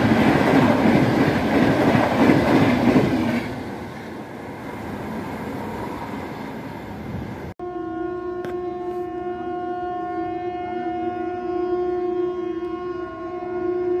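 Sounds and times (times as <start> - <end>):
train rumbling: 0.0 - 14.0
locomotive horn: 7.6 - 14.0.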